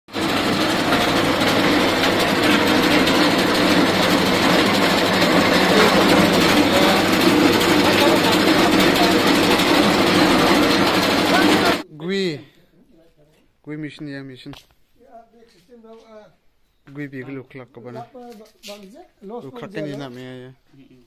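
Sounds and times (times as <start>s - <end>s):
dehusking machine running: 0.1s - 11.8s.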